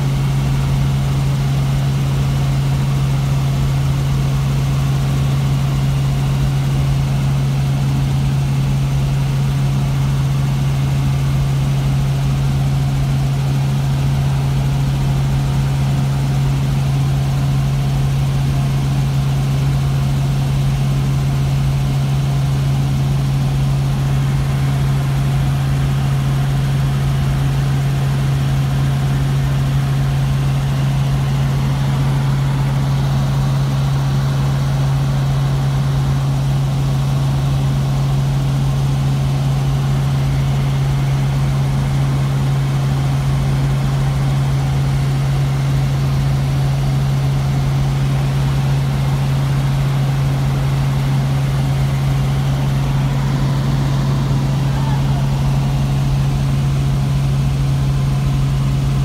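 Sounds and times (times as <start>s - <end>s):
helicopter engine and rotor hum: 0.0s - 59.0s
steady rushing noise: 51.2s - 58.6s.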